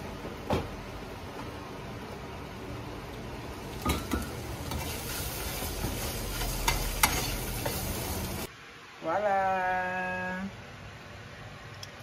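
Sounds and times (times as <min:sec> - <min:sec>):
sausages sizzling in a frying pan: 0:03.1 - 0:08.5.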